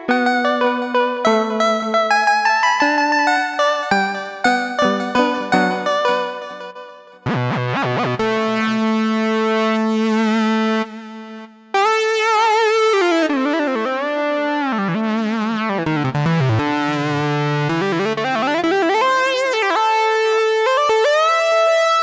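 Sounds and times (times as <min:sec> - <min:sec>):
synthesizer lead: 0:00.0 - 0:10.4.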